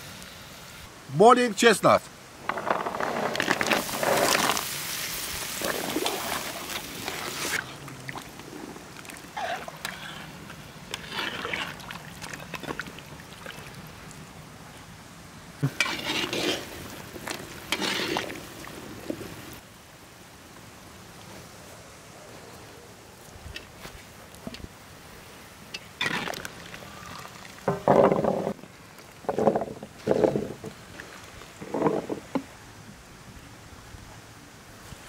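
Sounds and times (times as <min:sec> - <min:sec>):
metal ladle stirring: 0:15.7 - 0:18.4.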